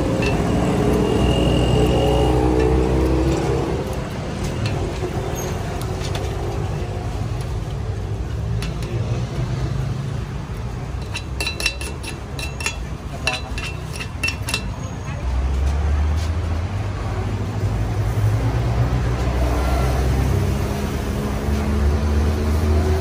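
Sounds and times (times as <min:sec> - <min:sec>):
street traffic rumble: 0:00.0 - 0:23.0
metal spoon knocking on pan: 0:11.0 - 0:14.7.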